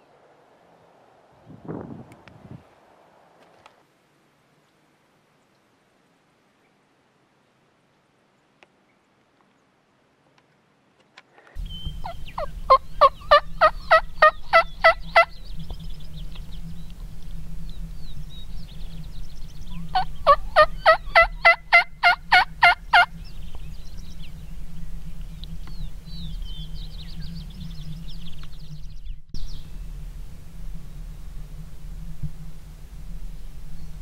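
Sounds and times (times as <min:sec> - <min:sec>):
turkey yelping: 0:11.6 - 0:15.4, 0:19.7 - 0:23.1
faint small-bird chirps: 0:11.6 - 0:17.0
steady low rumble: 0:11.6 - 0:34.0.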